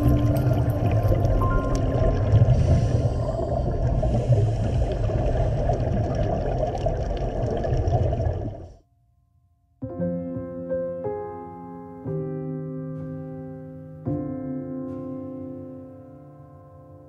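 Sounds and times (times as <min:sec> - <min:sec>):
underwater regulator bubbles: 0:00.0 - 0:08.8.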